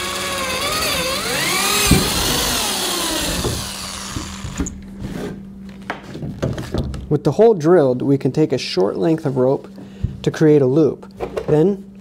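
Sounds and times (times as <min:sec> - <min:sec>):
electric drill whining: 0:00.0 - 0:04.8.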